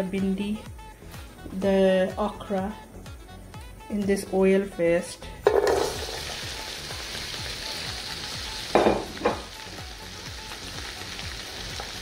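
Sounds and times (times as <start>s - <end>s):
okra sizzling in oil: 5.4s - 12.0s.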